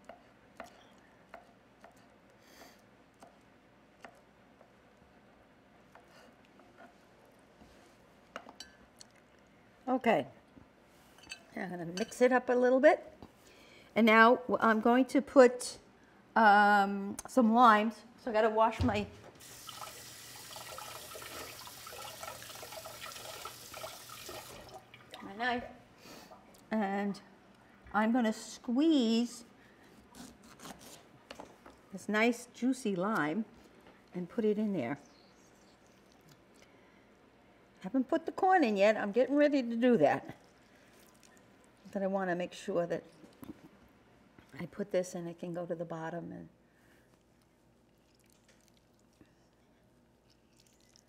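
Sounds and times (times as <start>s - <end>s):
faucet running: 19.4s - 25.2s
knife rinsed under water: 19.4s - 25.2s.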